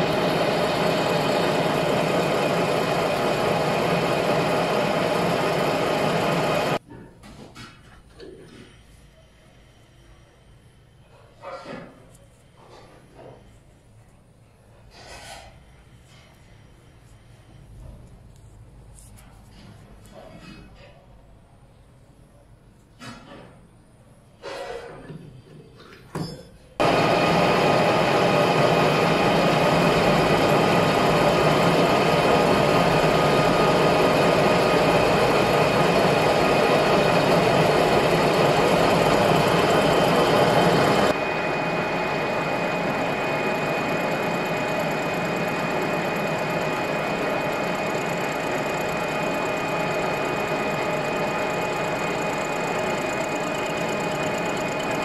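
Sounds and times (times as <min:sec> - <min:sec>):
metal lathe running: 0:00.0 - 0:06.8, 0:26.8 - 0:55.0.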